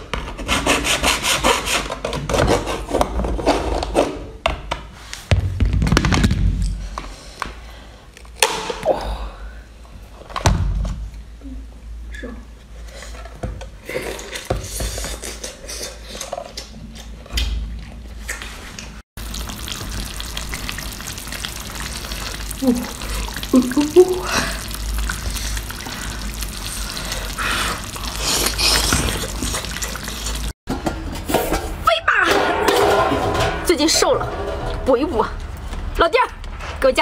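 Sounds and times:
slurping and chewing: 0:19.2 - 0:30.6.

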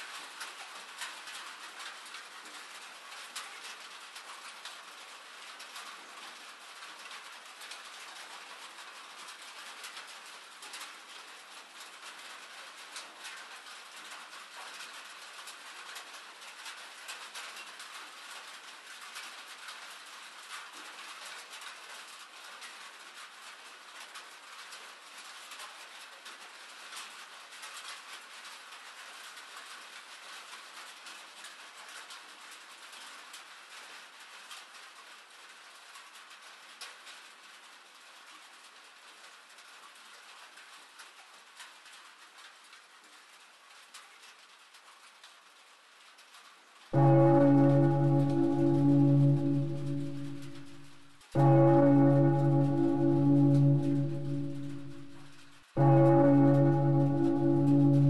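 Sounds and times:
steady rain patter: 0:00.0 - 0:58.0.

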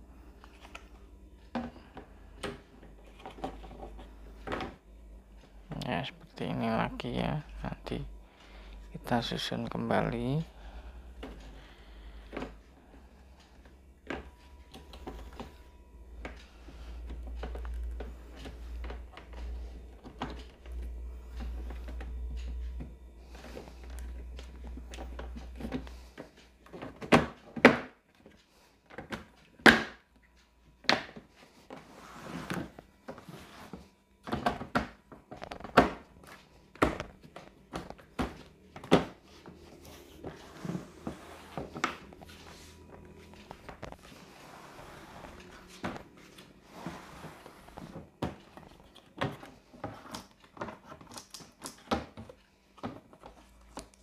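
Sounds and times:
plastic panels knocking and clicking: 0:34.2 - 0:36.0.

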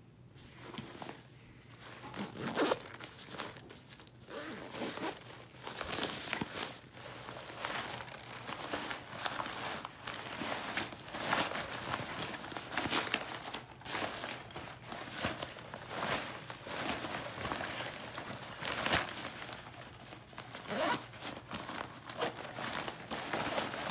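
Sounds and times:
thin fabric rustling: 0:00.4 - 0:23.9
zipper being undone: 0:02.0 - 0:06.6, 0:20.6 - 0:22.5.

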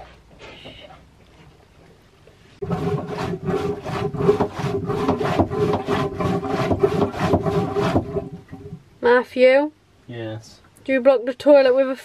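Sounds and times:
hand pump rasping strokes: 0:02.6 - 0:08.8.

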